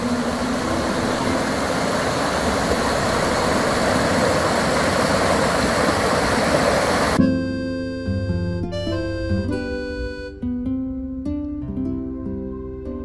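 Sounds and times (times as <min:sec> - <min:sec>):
river rapids rushing over rocks: 0:00.0 - 0:07.2.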